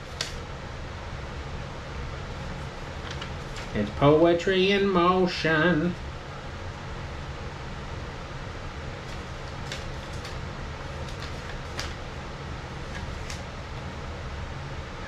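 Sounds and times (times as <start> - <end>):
low room hum: 0.0 - 15.0
paper and box rustling: 2.4 - 4.0, 9.0 - 12.1, 12.8 - 13.5.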